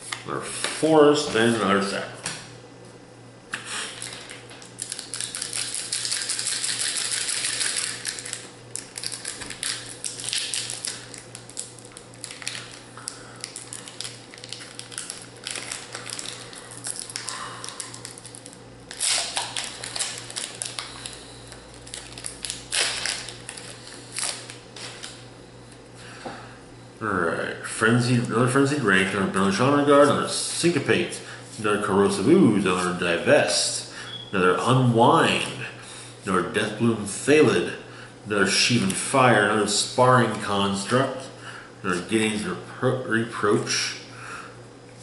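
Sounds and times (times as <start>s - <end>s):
foil wrapper crinkling and tearing: 3.9s - 25.2s.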